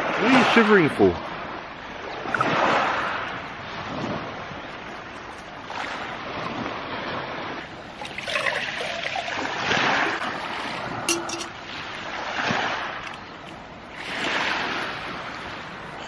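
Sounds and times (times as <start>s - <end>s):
surf on a beach: 0.0s - 16.0s
wind on microphone: 2.2s - 5.1s.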